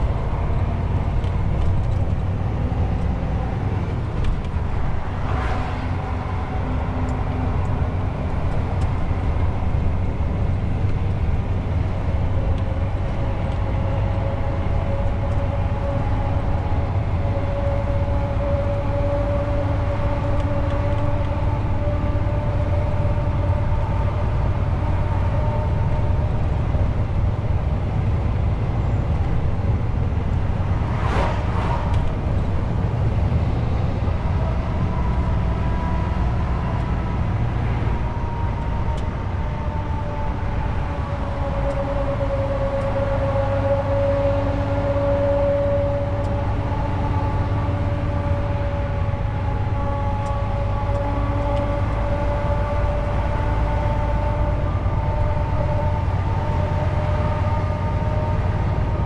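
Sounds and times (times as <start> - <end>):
road noise: 0.0 - 59.0
truck diesel engine rumble: 0.0 - 59.0
brief rushes of noise: 30.8 - 32.2.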